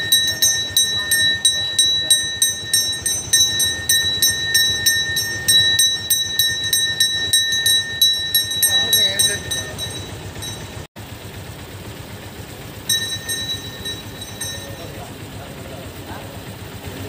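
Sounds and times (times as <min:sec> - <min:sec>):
brass hand bell ringing: 0:00.0 - 0:10.9, 0:12.9 - 0:15.2.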